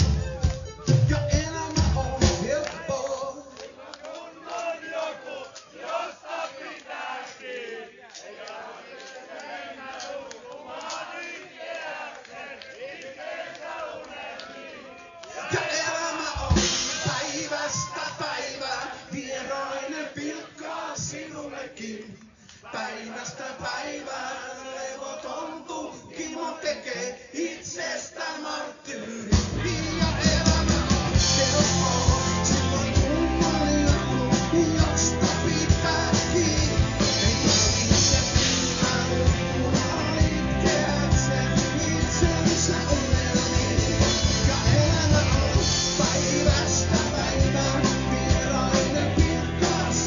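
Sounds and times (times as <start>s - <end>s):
rock band playing: 0.0s - 2.6s, 16.4s - 17.5s, 29.4s - 50.0s.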